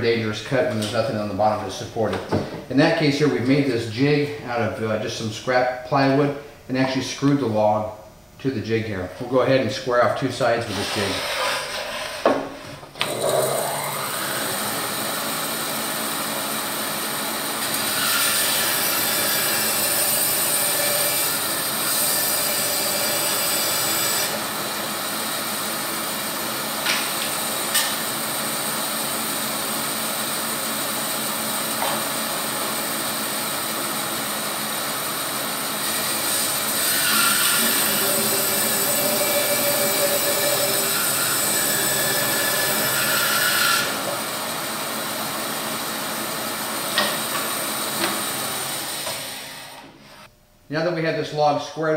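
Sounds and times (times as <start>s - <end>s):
bandsaw running: 10.4s - 50.3s
saw blade cutting log: 10.6s - 16.1s, 17.6s - 24.6s, 35.8s - 44.4s.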